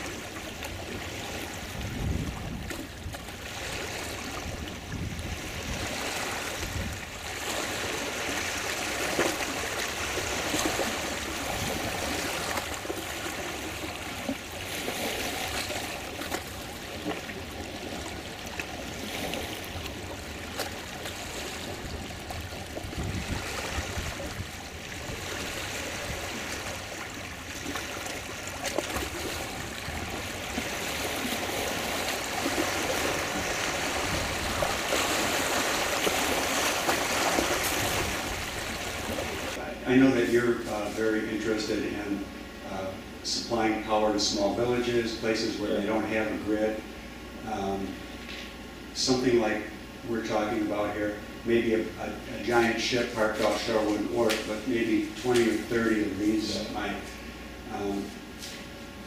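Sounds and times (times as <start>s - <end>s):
water lapping and trickling: 0.0s - 43.0s, 50.2s - 59.0s
low rumbles: 15.4s - 42.1s.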